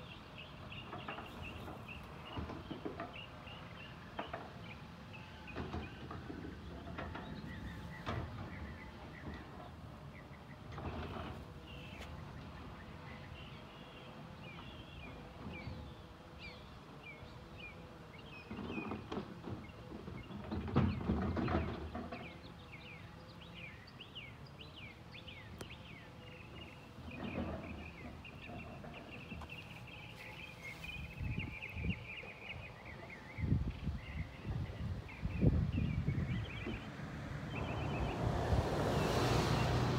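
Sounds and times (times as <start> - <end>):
small birds chirping: 6.6 - 38.2.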